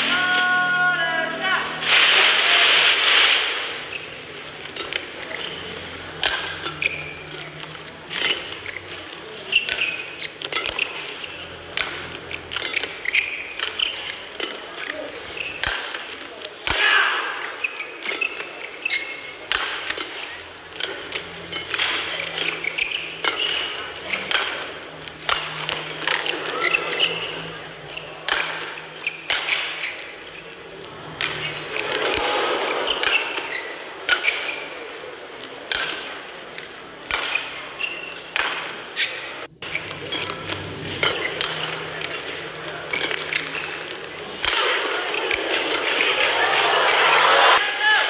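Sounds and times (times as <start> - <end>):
crowd murmur: 0.0 - 48.0
rackets hitting shuttlecock: 1.8 - 47.6
shoes squeaking on court: 2.8 - 16.6, 17.4 - 47.6
crowd cheering and applause: 45.6 - 48.0.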